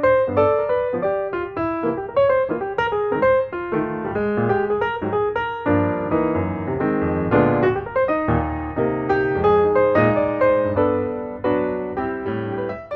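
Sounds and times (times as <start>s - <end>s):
piano music: 0.0s - 12.9s.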